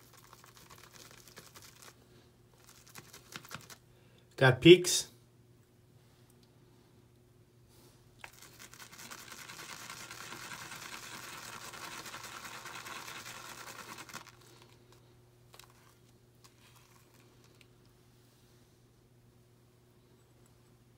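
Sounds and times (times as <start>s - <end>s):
shaving brush swishing lather: 8.2s - 14.6s.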